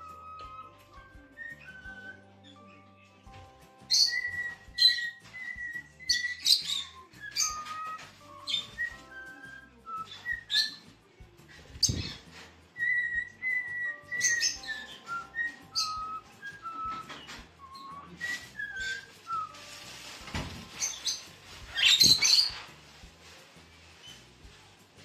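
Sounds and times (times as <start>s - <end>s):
whistled tune: 0.0s - 11.0s, 11.6s - 22.7s
parrots chirping and squawking: 3.9s - 9.3s, 10.0s - 10.9s, 11.6s - 22.7s.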